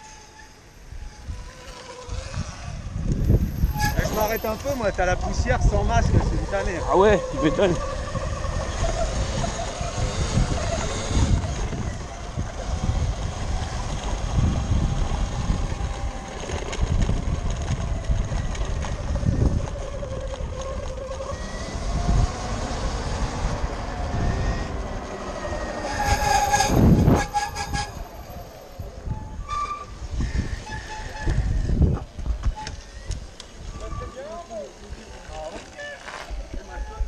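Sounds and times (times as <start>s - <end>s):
short high squeal: 0.0s - 2.7s, 3.3s - 5.0s, 24.2s - 31.7s
tyres rumbling on rough ground: 0.0s - 37.0s
wind: 0.0s - 37.0s
electric motor whine: 1.2s - 26.0s.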